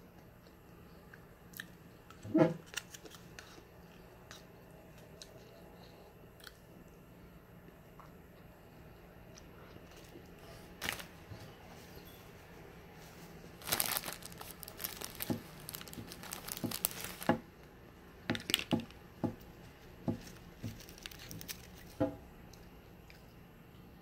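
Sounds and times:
paper cup rustling: 13.0s - 17.4s.

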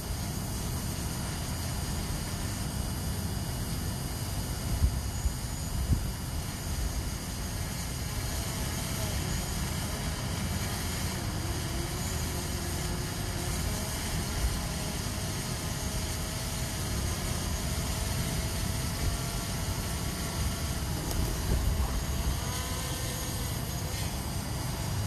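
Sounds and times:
drone motors whining: 0.0s - 25.0s
wind rumble on microphone: 4.6s - 7.2s, 20.7s - 22.6s.

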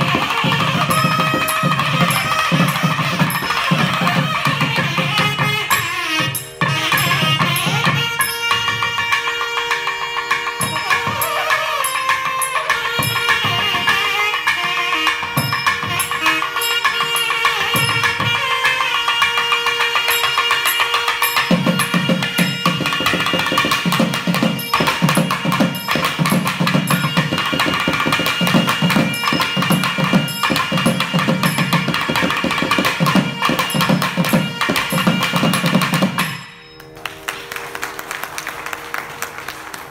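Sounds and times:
wind instruments playing melody: 0.0s - 36.4s
light applause: 36.8s - 39.9s.

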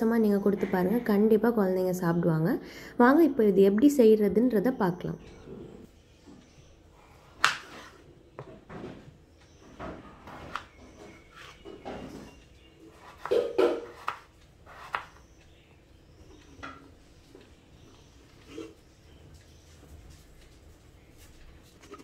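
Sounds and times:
knife chopping on wooden board: 12.9s - 15.2s.

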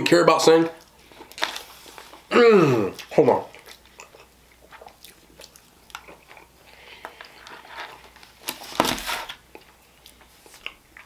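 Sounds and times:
food packaging crinkling: 0.6s - 2.3s, 4.6s - 10.8s.

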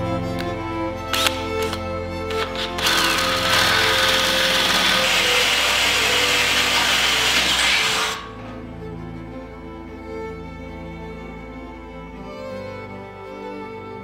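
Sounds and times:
cordless drill boring through steel: 2.3s - 8.4s.

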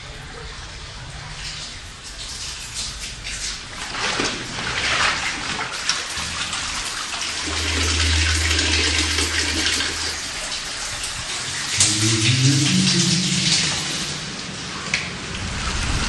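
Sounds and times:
water rushing and splashing: 3.0s - 16.0s
low steady hum: 6.2s - 16.0s
low tones: 7.4s - 14.7s.

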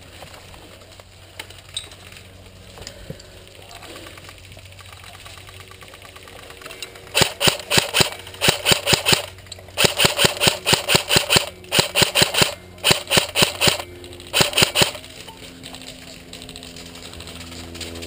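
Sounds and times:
airsoft rifle shots: 7.1s - 15.0s.

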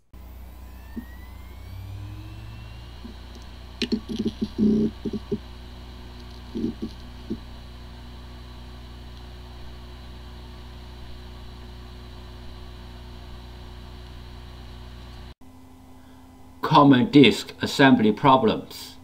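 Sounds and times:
hard drive spinning up: 0.0s - 16.4s
head seek ticks: 3.8s - 5.4s.

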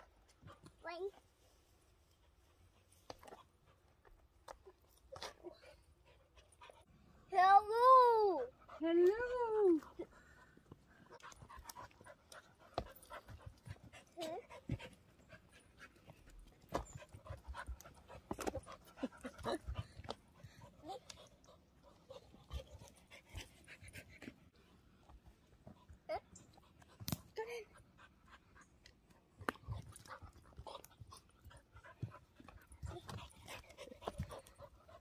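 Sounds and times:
dog panting: 5.2s - 6.9s, 9.7s - 24.6s, 27.6s - 35.0s.

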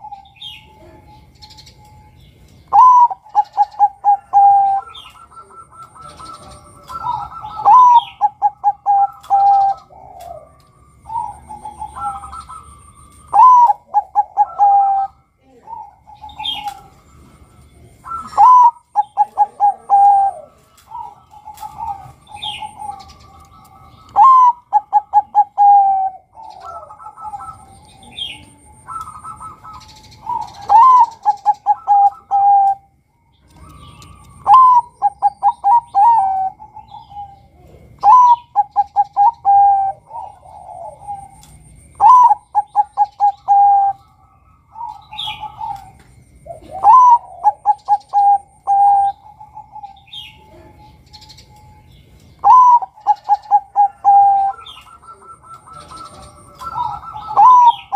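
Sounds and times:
dove cooing song: 0.0s - 57.9s
small birds chirping faintly: 0.0s - 57.9s.

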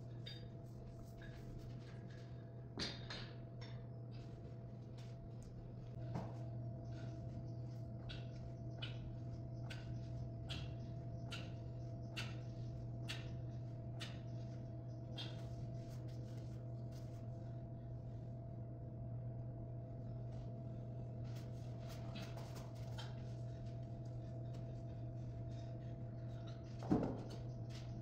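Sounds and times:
low electrical hum: 0.0s - 28.0s
soft rustling on exercise mat: 15.4s - 17.6s.

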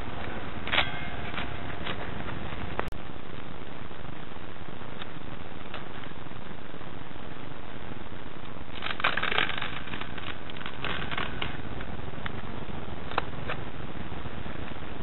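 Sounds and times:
steady background hiss: 0.0s - 15.0s
tape ripping with crackling: 8.7s - 11.6s.

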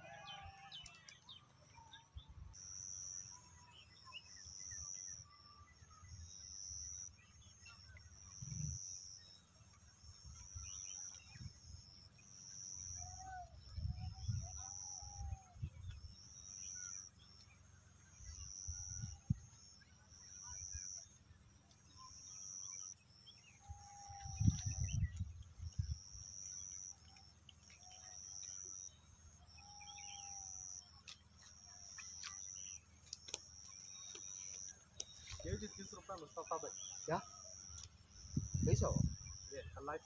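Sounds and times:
wind rumbling on microphone: 13.4s - 16.2s, 23.7s - 26.2s, 38.2s - 39.8s.

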